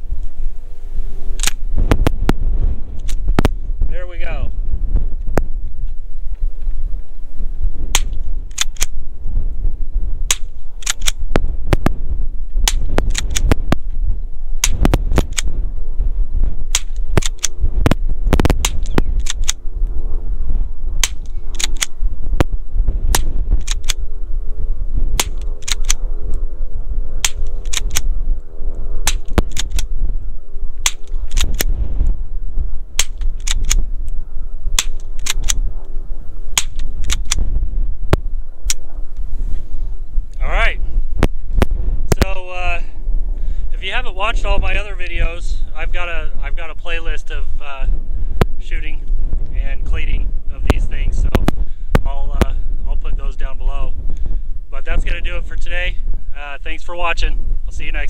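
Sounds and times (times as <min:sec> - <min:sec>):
wind rumble on microphone: 0:00.0 - 0:58.0
rifle shots cracking: 0:07.9 - 0:09.0, 0:10.3 - 0:11.2, 0:12.6 - 0:13.6, 0:14.6 - 0:15.5, 0:16.7 - 0:17.6, 0:21.0 - 0:21.9, 0:23.1 - 0:24.0, 0:25.2 - 0:26.0, 0:27.2 - 0:28.1, 0:29.0 - 0:29.9, 0:30.8 - 0:31.7, 0:34.8 - 0:35.6, 0:36.6 - 0:37.4.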